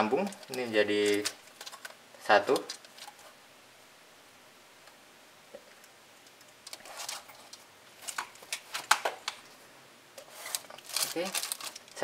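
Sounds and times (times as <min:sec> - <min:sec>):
plastic casing clicks and rustling: 0:00.3 - 0:03.2, 0:10.5 - 0:12.0.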